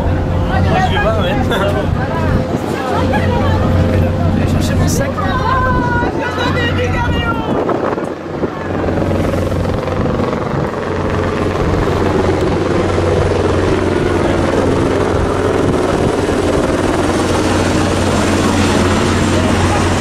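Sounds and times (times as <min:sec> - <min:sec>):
helicopter rotor and engine drone: 0:00.0 - 0:20.0.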